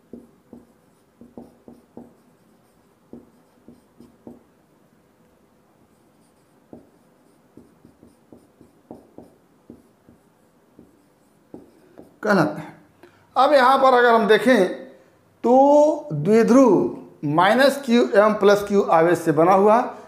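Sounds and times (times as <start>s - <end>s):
marker squeaking on whiteboard: 0.1s - 4.4s, 5.9s - 12.2s.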